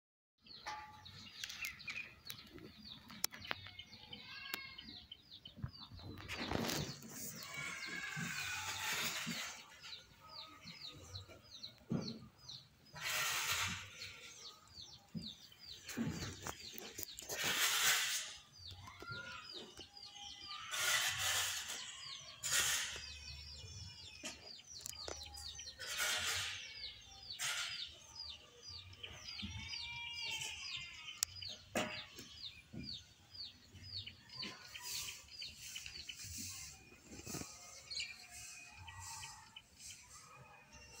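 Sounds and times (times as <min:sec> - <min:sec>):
small birds chirping: 0:00.4 - 0:41.0
rustling noise: 0:05.6 - 0:10.1, 0:12.9 - 0:14.4, 0:15.1 - 0:19.8, 0:34.4 - 0:40.2.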